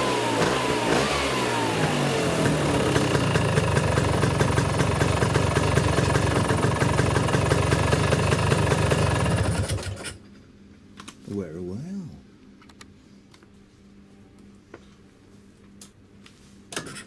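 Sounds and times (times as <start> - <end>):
scooter engine idling: 0.0 - 10.0.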